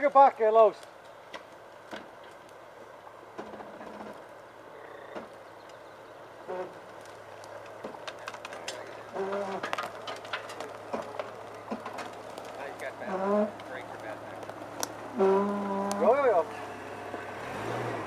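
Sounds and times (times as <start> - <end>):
twigs snapping under tyres: 0.8 - 2.6, 6.5 - 16.2
low engine hum: 0.8 - 18.0.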